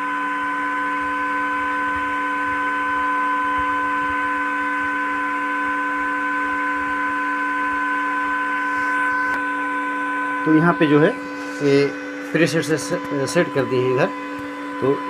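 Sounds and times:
welding machine fan humming: 0.0 - 15.0.

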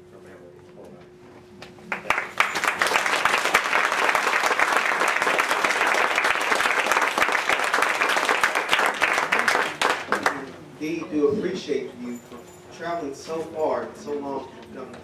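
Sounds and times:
audience applauding: 1.9 - 10.5.

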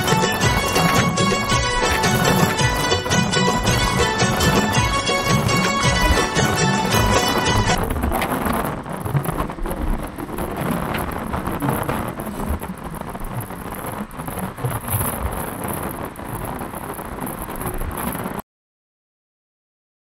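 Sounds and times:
music snatch: 0.0 - 7.8
road noise inside moving car: 0.0 - 18.4.

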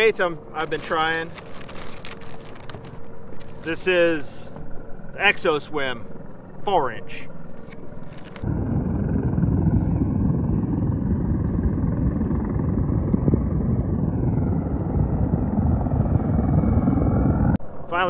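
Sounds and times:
wind buffeting microphone: 7.9 - 17.8.

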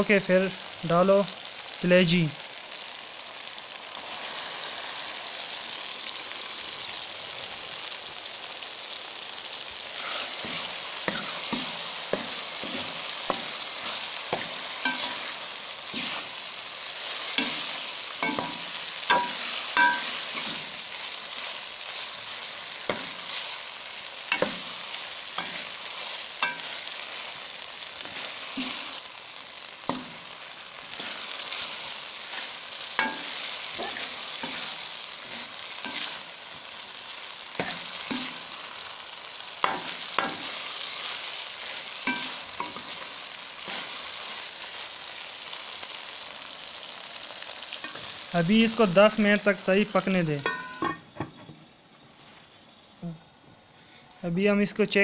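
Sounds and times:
liver sizzling in hot oil: 0.0 - 55.0
spoon scraping metal pan: 14.3 - 16.2, 35.3 - 36.2, 50.4 - 51.1.

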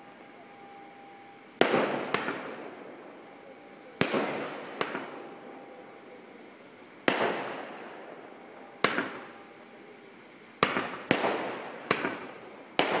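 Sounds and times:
firework shells bursting: 1.6 - 2.8, 4.0 - 5.4, 7.0 - 9.4, 10.6 - 13.0.

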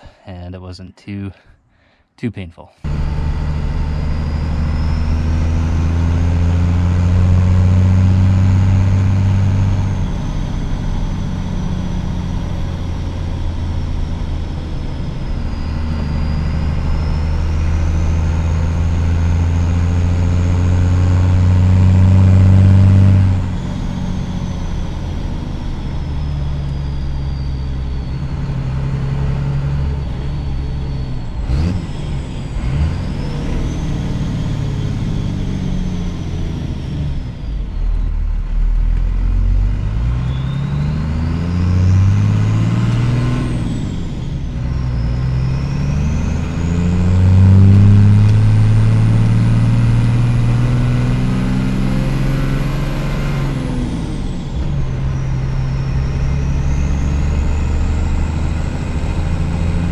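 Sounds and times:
diesel engine under load: 2.8 - 59.9
turbo whistle: 40.1 - 48.0.

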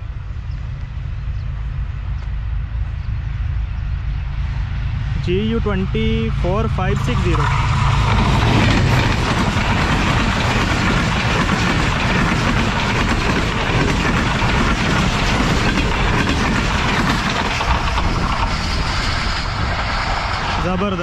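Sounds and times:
train coaches rushing past: 4.4 - 21.0
wheels clattering over rails: 7.0 - 21.0.

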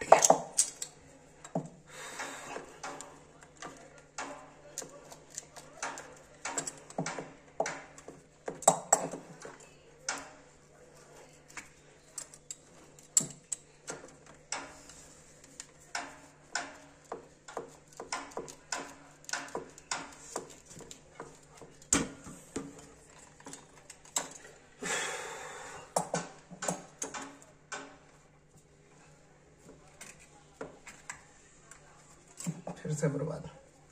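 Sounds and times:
pliers clicking on plastic pipe: 0.2 - 10.4, 12.2 - 14.9, 17.5 - 21.0, 26.0 - 27.9.

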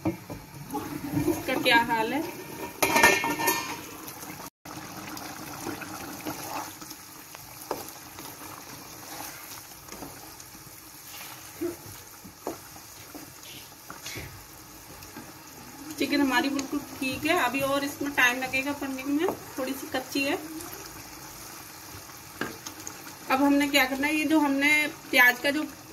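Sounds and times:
gravy sloshing and squelching: 3.7 - 16.0.

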